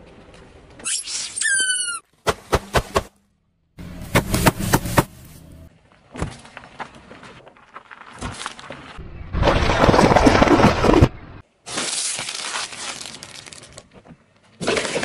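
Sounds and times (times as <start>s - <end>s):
tyre crunching vegetables: 3.8s - 5.6s, 11.6s - 15.0s.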